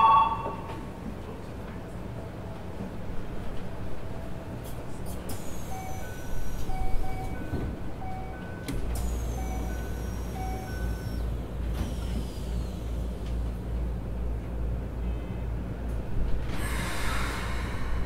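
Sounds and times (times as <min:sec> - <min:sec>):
short electronic beeps: 0:00.0 - 0:00.7, 0:09.4 - 0:11.2
train equipment humming: 0:00.0 - 0:18.0.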